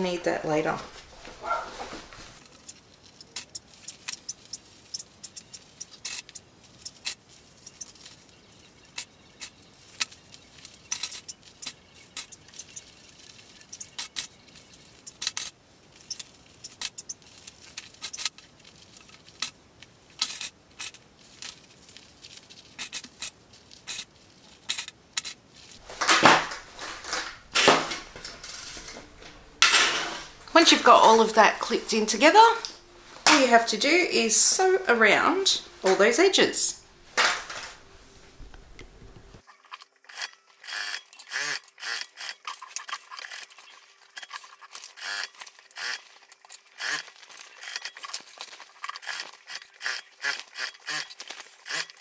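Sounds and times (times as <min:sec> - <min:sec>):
fabric rustling: 0:00.6 - 0:03.9, 0:25.4 - 0:39.4.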